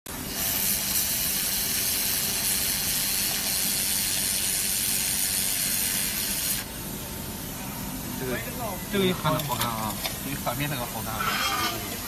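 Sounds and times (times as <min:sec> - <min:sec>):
gas hissing from nozzle: 0:00.2 - 0:06.8.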